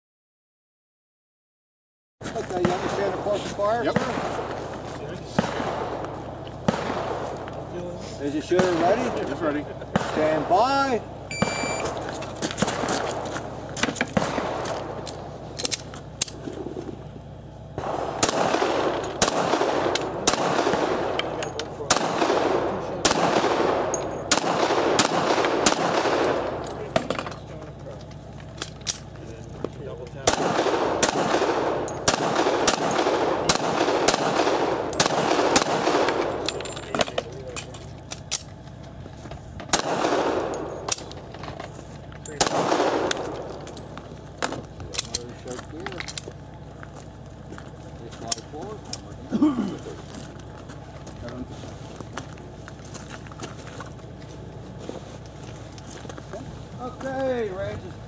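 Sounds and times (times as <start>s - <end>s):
footsteps on gravel: 2.2s - 9.0s, 11.7s - 17.7s, 40.7s - 42.4s, 43.2s - 58.0s
pistol shots: 2.5s - 4.6s, 5.3s - 7.7s, 8.5s - 10.6s, 12.6s - 15.4s, 17.8s - 27.2s, 30.2s - 36.6s, 39.7s - 41.3s, 42.3s - 43.7s.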